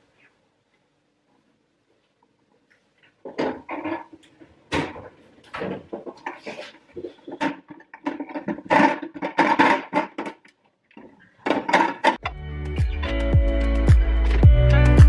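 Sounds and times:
kitchen items knocking and clattering: 3.2s - 12.3s.

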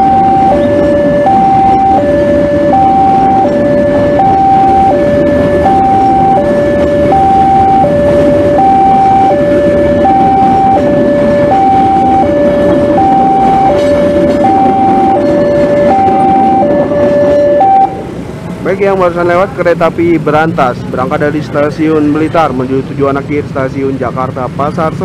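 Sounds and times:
level crossing alarm two-tone signal: 0.0s - 18.0s
train coaches rumbling: 0.0s - 25.0s.

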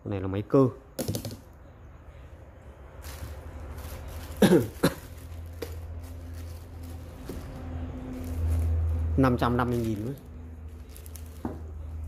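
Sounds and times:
person clearing throat: 4.4s - 5.1s.

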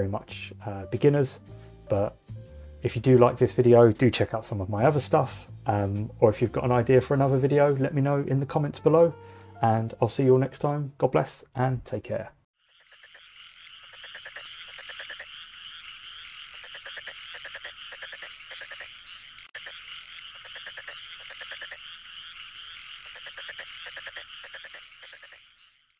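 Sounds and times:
frogs trilling and croaking: 12.6s - 25.9s
short rising frog calls: 12.6s - 25.9s.

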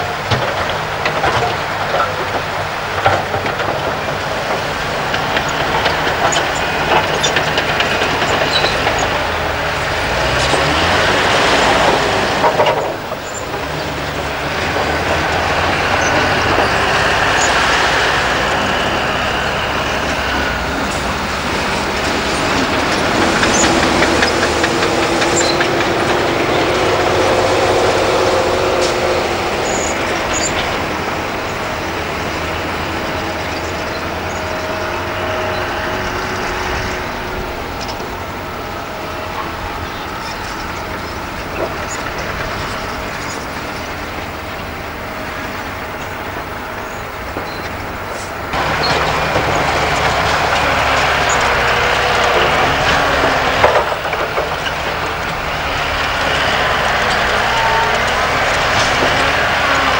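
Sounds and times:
diesel machinery running: 0.0s - 59.9s.

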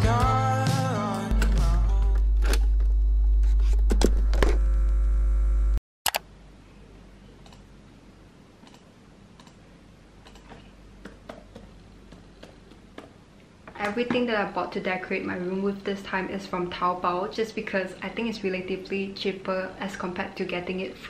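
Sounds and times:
music with deep bass: 0.0s - 2.4s.

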